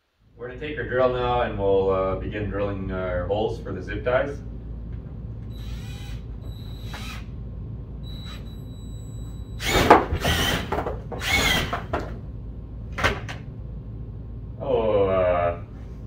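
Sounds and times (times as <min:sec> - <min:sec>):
cordless drill whirring: 0:05.5 - 0:07.3, 0:08.1 - 0:08.6, 0:09.6 - 0:11.7.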